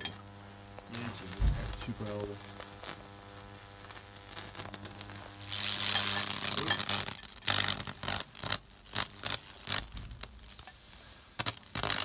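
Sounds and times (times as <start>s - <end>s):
hissing crackling electric arc: 0.0s - 12.0s
sharp electric snaps: 0.0s - 12.0s
faint crackling: 0.1s - 12.0s.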